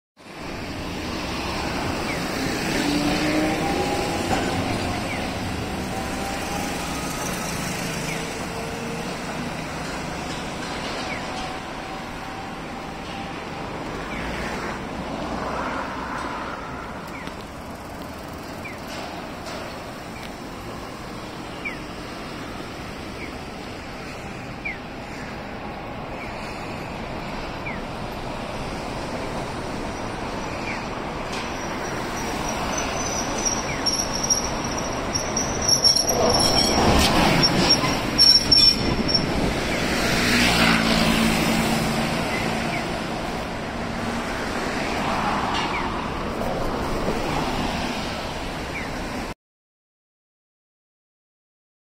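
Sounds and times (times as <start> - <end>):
tram passing on track: 0.2 - 49.3
road traffic: 0.2 - 49.4
high wheel squeal: 29.6 - 40.8.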